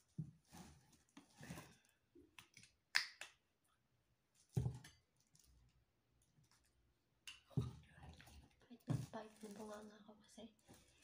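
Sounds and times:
plastic bottle handling: 7.6s - 9.9s.

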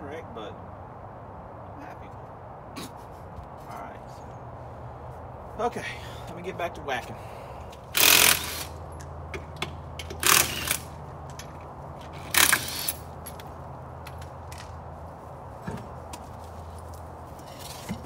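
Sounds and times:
power tool cutting metal: 8.0s - 8.7s.

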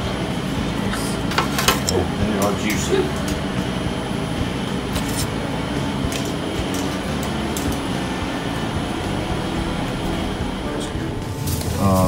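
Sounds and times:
low machinery drone: 0.0s - 12.0s.

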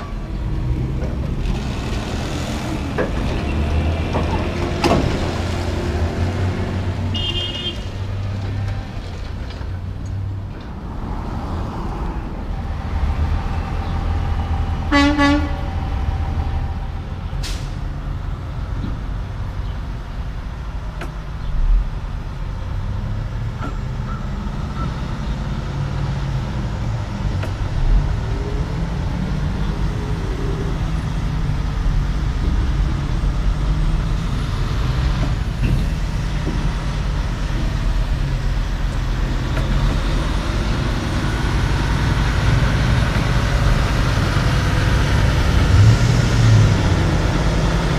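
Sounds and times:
truck diesel engine rumbling: 0.0s - 47.9s
truck horn toot: 7.1s - 7.9s, 14.9s - 15.8s.

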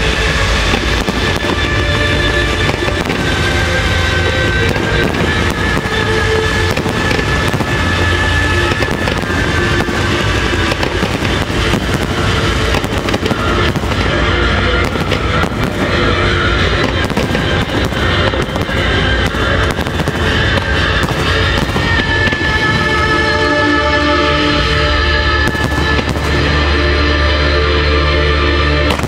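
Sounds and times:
firework shell bursts and crackling: 0.0s - 24.8s, 25.4s - 26.8s
music playing: 0.0s - 29.0s.

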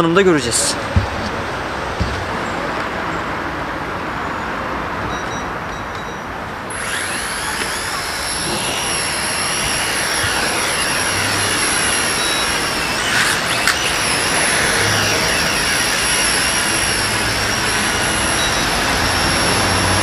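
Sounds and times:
toy drone motors whining: 6.7s - 20.0s.

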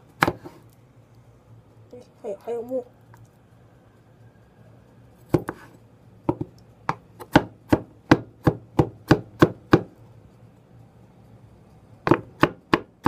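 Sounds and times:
cleaver chopping on wooden board: 0.2s - 0.5s, 5.3s - 5.6s, 6.3s - 9.9s, 12.0s - 13.0s.

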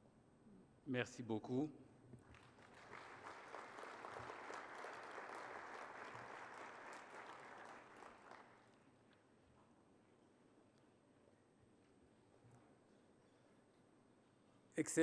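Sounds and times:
audience applauding: 2.3s - 8.8s.

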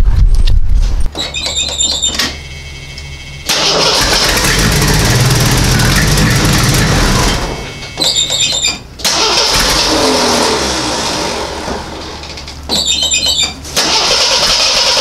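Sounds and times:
car engine cranking: 3.5s - 15.0s.

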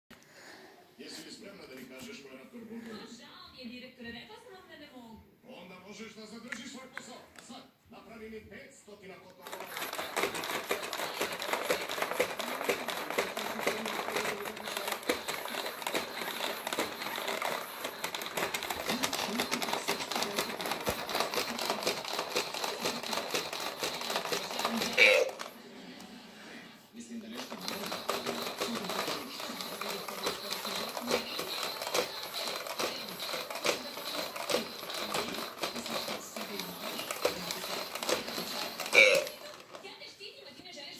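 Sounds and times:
toy robot motors clicking: 9.4s - 25.5s, 27.3s - 40.0s.

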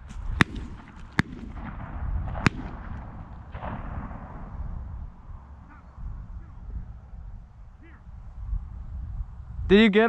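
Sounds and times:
wind noise on microphone: 0.0s - 10.0s
sharp gunshot: 0.4s - 4.6s.

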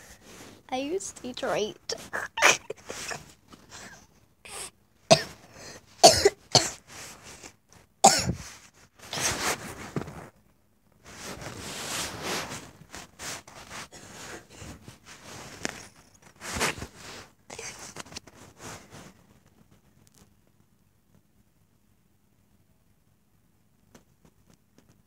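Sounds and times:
fabric rubbing on microphone: 0.0s - 1.0s, 1.9s - 4.0s, 6.8s - 7.6s, 8.4s - 10.4s, 11.0s - 20.4s
girl coughing: 1.9s - 3.2s, 4.5s - 5.4s, 6.0s - 6.8s, 8.0s - 8.4s.

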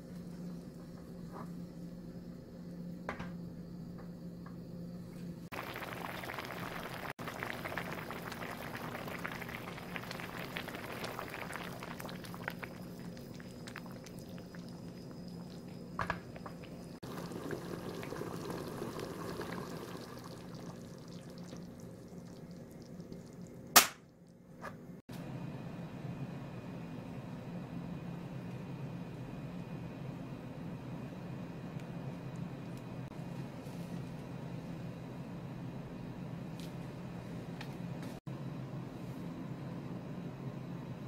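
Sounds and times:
sauce bubbling in pan: 5.5s - 23.9s.

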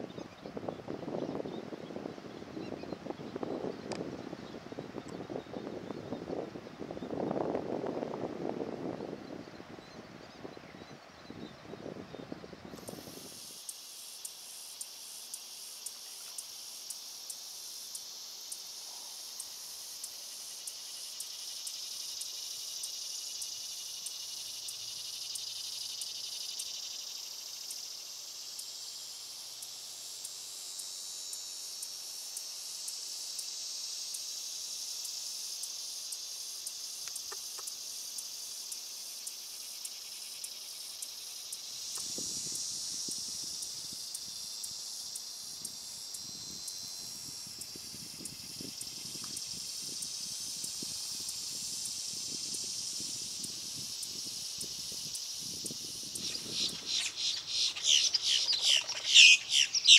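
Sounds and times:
high-pitched insect chorus: 0.0s - 59.9s
light regular tick: 3.8s - 4.1s, 15.8s - 16.5s, 36.6s - 37.8s, 41.8s - 42.7s, 47.5s - 49.5s.

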